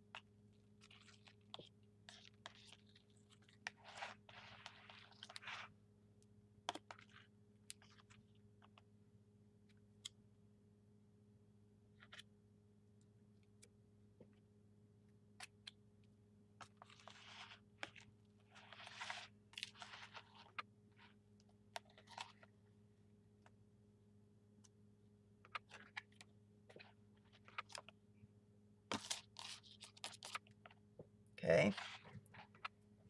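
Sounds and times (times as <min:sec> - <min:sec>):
card scraping cream in plastic tub: 0:00.8 - 0:05.7, 0:16.6 - 0:21.2, 0:28.9 - 0:30.5, 0:31.6 - 0:32.8.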